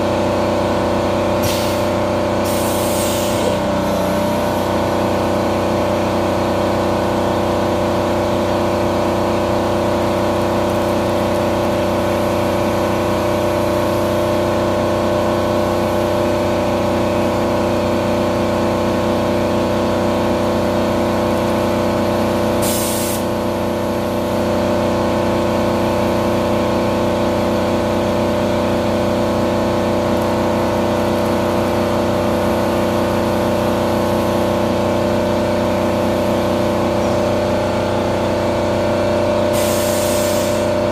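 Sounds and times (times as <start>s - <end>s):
hiss of coolant spray: 1.4s - 3.7s, 22.6s - 23.4s, 39.5s - 40.8s.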